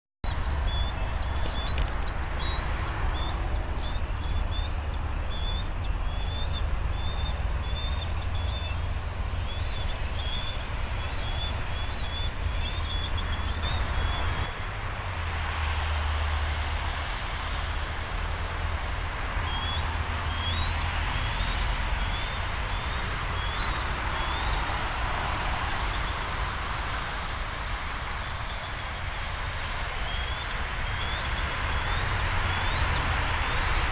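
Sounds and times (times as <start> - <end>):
eagle high piping calls: 0.3 - 14.5.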